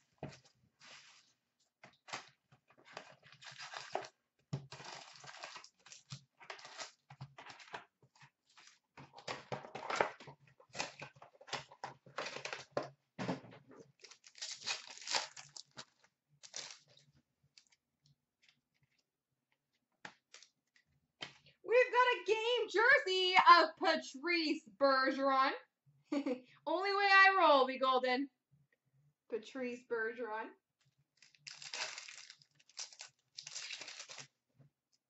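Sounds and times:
foil packs crinkling: 3.0 - 12.8, 13.9 - 17.0, 31.2 - 34.3
plastic shrink wrap tearing: 3.2 - 4.1, 4.7 - 7.8, 14.0 - 17.0, 31.2 - 34.3.

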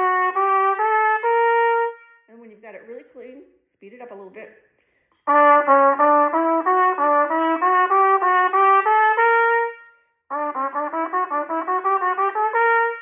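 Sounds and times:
trumpet playing short notes: 0.0 - 2.3, 5.3 - 13.0.

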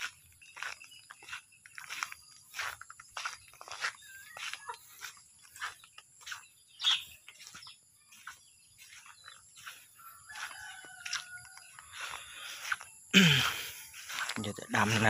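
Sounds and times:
rooster crowing: 10.0 - 12.2.

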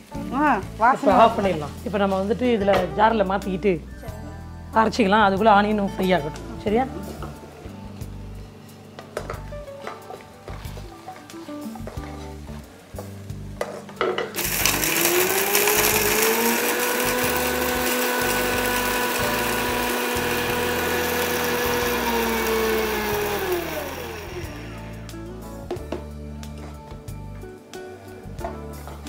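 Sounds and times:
mixer grinder motor whining: 14.4 - 25.1.

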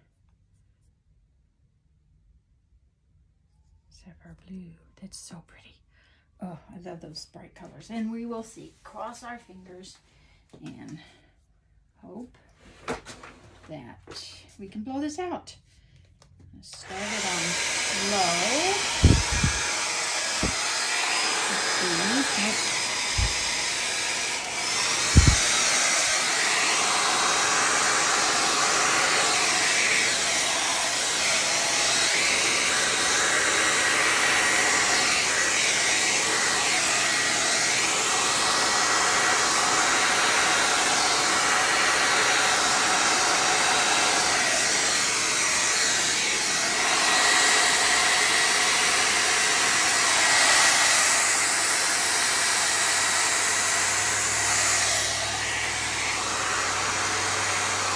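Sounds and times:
hair dryer blowing: 16.7 - 57.9.

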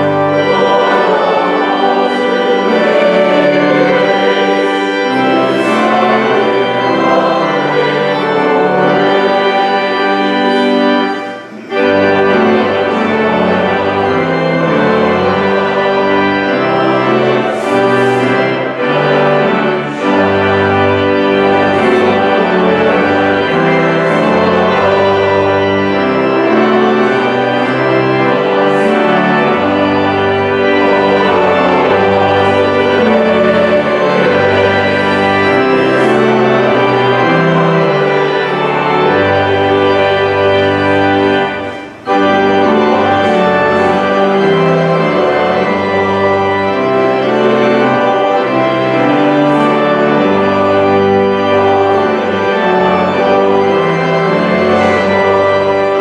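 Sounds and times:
church organ chords: 0.0 - 56.0
deep organ pedal bass notes: 0.0 - 56.0.

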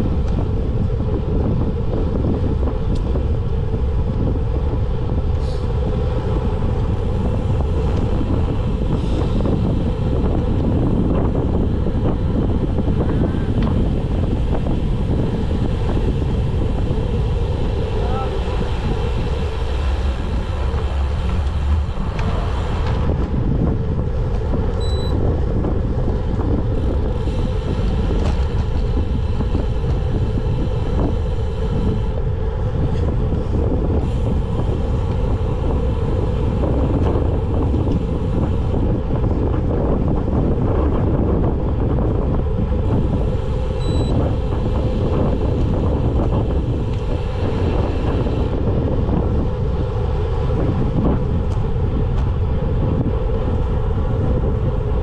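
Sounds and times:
wind rushing over microphone: 0.0 - 55.0
short high beeps: 24.8 - 25.2, 43.8 - 44.2.

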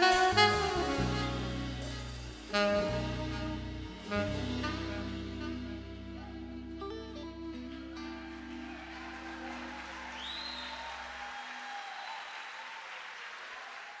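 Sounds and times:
live band with saxophone: 0.0 - 12.5
rising whistle: 7.3 - 12.8
audience applause: 8.0 - 14.0.

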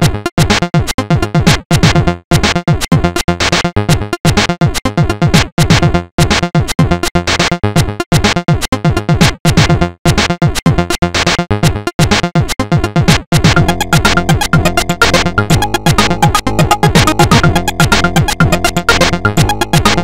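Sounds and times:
rapid synth drum hits: 13.1 - 20.0
sustained synth chords: 13.6 - 20.0.

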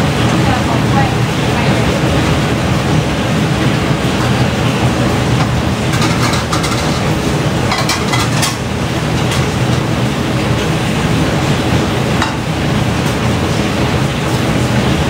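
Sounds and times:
heavy rain: 0.0 - 15.0
dishes and utensils clinking: 5.3 - 10.7, 12.1 - 12.6.

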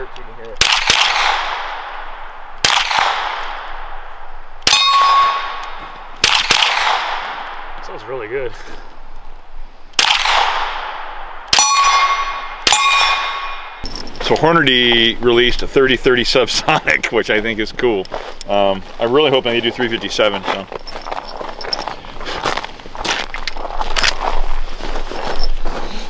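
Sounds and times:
suppressed gunshots: 0.6 - 4.0, 6.2 - 7.8, 10.0 - 13.2
metallic ringing of steel target: 4.6 - 8.0, 11.5 - 14.4.

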